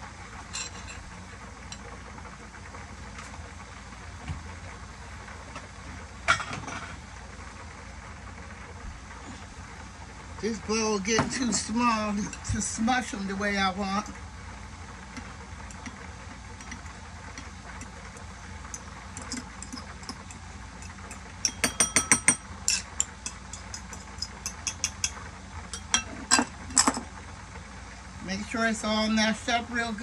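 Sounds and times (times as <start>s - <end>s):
low steady hum: 0.0s - 30.0s
spoon clinking and scraping bowls: 0.5s - 1.0s, 19.2s - 25.2s, 25.8s - 27.0s.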